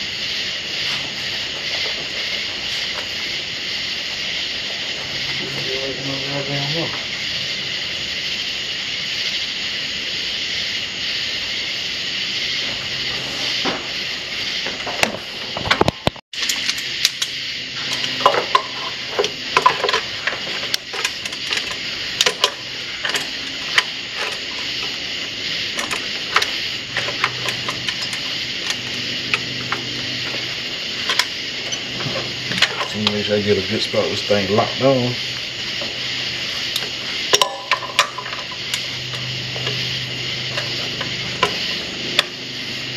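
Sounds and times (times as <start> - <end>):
steady hiss: 0.0 - 42.9
metal tools clinking: 16.4 - 25.0, 25.7 - 34.8, 36.3 - 42.3.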